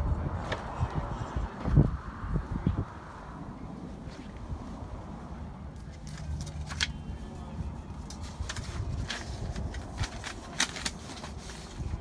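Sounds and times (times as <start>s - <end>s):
plastic folder clicking and rustling: 6.0s - 7.0s, 8.0s - 11.8s.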